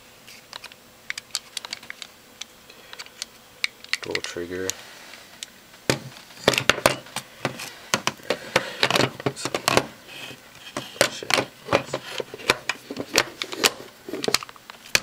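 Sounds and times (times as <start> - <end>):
plastic and metal parts clicking: 0.5 - 2.1, 5.9 - 9.9, 10.6 - 15.0.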